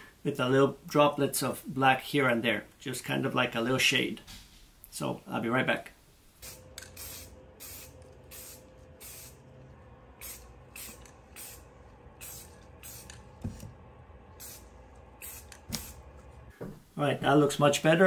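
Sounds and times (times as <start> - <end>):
spray paint can hissing: 6.4 - 9.4, 10.2 - 13.7, 14.4 - 16.1.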